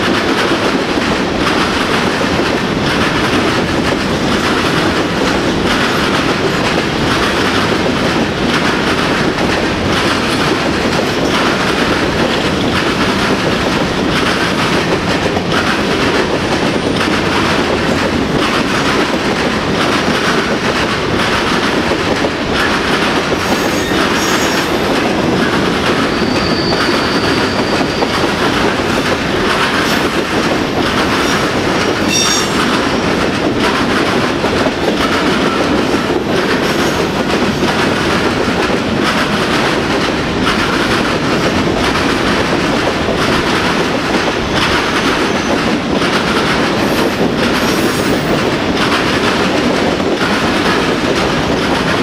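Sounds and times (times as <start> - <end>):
train wheels rumbling and clacking: 0.0 - 52.0.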